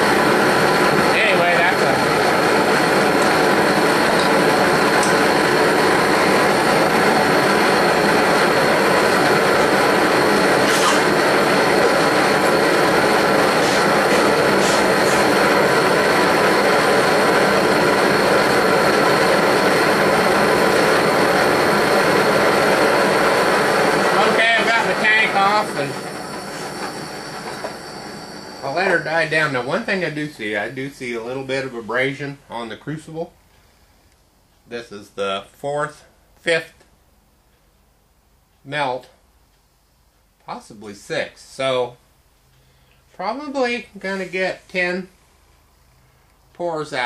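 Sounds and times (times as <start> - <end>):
torch flame roaring: 0.0 - 31.6.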